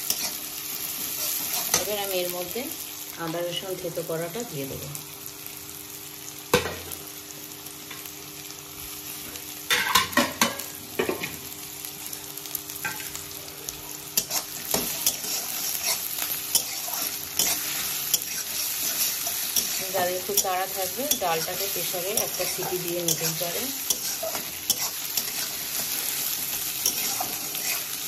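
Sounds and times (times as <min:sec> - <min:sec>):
onions sizzling in hot oil: 0:00.0 - 0:28.0
metal spatula scraping a pan: 0:14.2 - 0:28.0.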